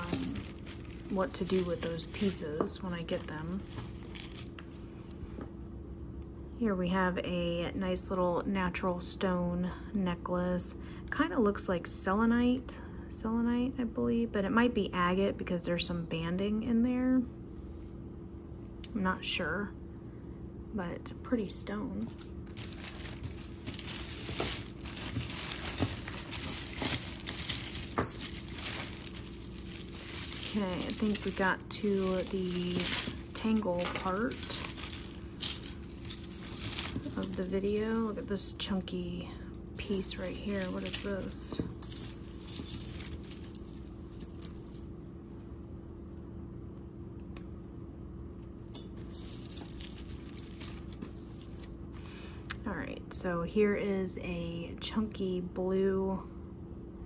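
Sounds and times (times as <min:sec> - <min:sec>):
jewelry clinking and jingling: 0:00.0 - 0:04.6, 0:22.1 - 0:45.4, 0:48.6 - 0:51.7
faint steady hum: 0:00.0 - 0:57.0.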